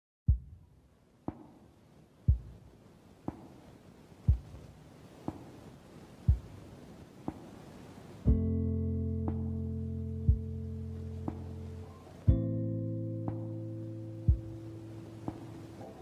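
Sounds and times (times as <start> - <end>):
deep thumping pulse: 0.3 - 0.7, 6.3 - 6.7, 8.3 - 8.6, 10.2 - 11.6, 14.3 - 14.7
faint low hum: 0.3 - 16.0.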